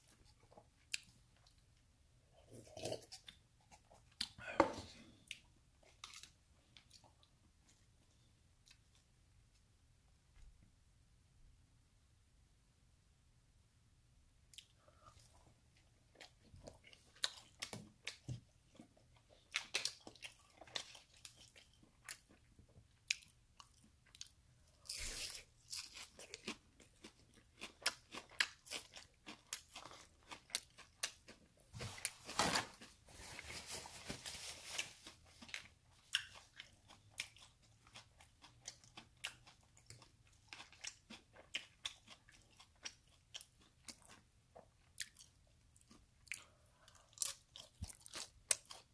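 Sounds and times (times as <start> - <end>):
close chewing of crispy food: 0.0 - 9.1, 14.5 - 48.9.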